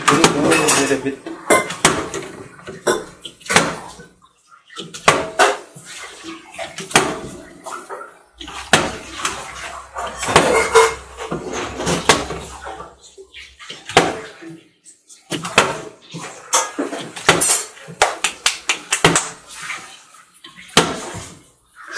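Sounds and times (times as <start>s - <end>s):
plastic bottles landing on glass: 8.5s - 12.8s, 16.6s - 18.2s.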